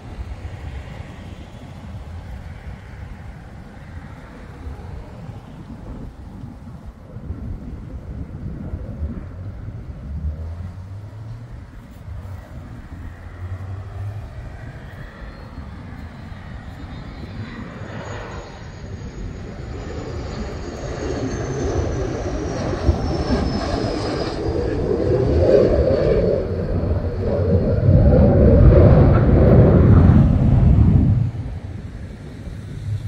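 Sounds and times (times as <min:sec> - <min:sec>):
fighter jet flying over: 0:00.0 - 0:33.0
high whine sliding down: 0:09.0 - 0:33.0.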